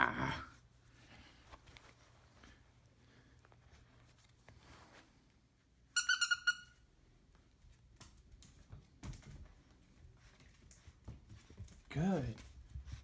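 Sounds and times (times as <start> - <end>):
squeaky dog toy squeaking: 6.0 - 6.8
paws tapping on wooden floor: 7.9 - 13.0.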